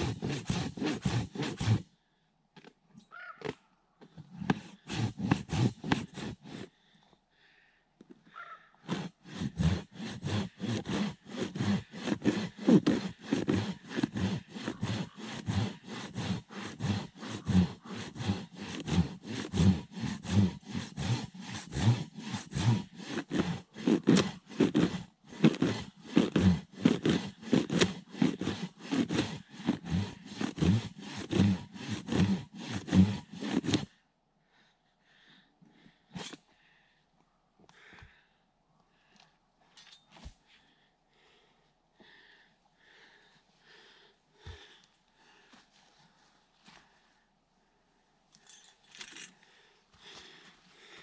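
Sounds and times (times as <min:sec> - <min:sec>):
handsaw cutting wood: 0:00.0 - 0:01.9, 0:04.3 - 0:06.8, 0:08.8 - 0:34.0.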